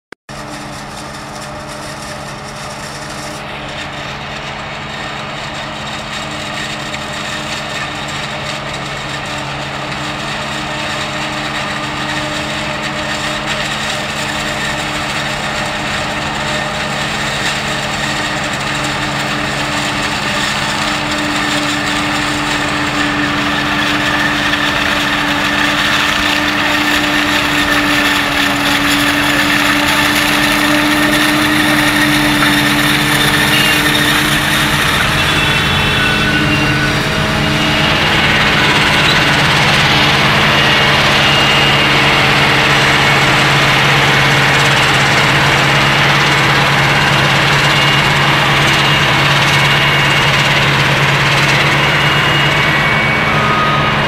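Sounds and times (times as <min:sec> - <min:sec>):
forage harvester chopping maize: 0:00.3 - 0:35.9.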